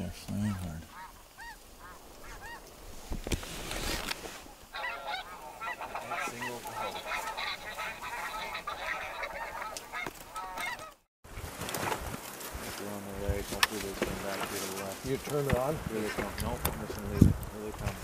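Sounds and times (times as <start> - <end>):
snow geese honking: 0.3 - 2.7, 4.3 - 11.1
wind buffeting microphone: 15.0 - 18.0.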